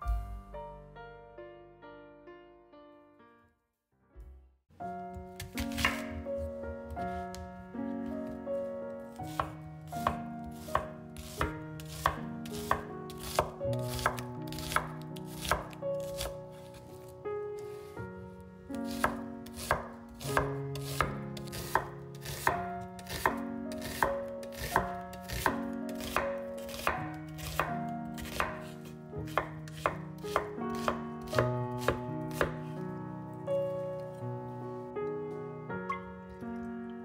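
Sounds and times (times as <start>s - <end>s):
soft background music: 4.8s - 37.0s
knife chopping on cutting board: 5.4s - 6.2s, 9.3s - 16.4s, 18.9s - 32.8s.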